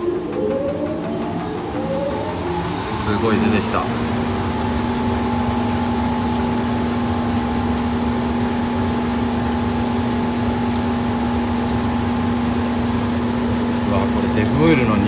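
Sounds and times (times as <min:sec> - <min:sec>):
workshop machine humming: 0:00.0 - 0:15.0
oil draining into metal pan: 0:02.7 - 0:15.0
faint drips: 0:03.0 - 0:15.0.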